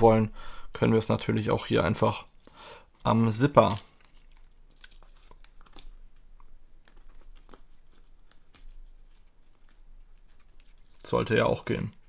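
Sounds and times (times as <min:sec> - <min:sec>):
carabiner clicks and rustles: 0:00.6 - 0:01.3, 0:02.0 - 0:12.0.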